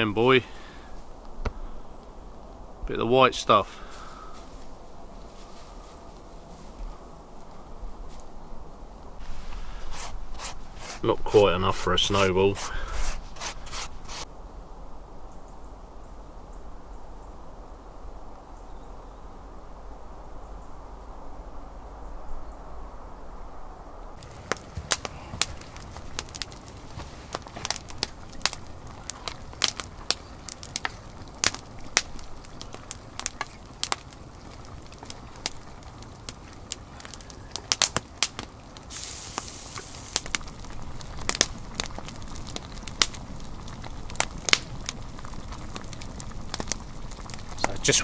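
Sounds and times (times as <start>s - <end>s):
soft hiss: 0.0s - 43.4s
campfire crackling: 0.0s - 48.0s
sharp fire pops: 1.3s - 1.6s, 24.2s - 48.0s.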